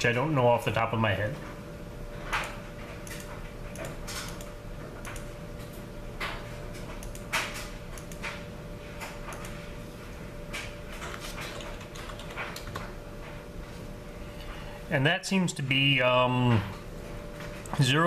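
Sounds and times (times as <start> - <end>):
calculator keys clicking: 11.5 - 12.9.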